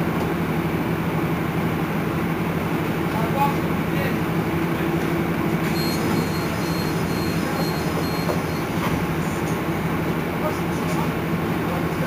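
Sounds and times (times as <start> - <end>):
bus engine droning: 0.0 - 12.0.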